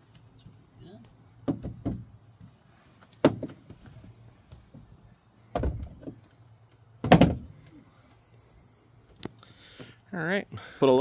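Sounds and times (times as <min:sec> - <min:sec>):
clunks and knocks of bolting: 0:01.4 - 0:03.8, 0:04.5 - 0:07.7.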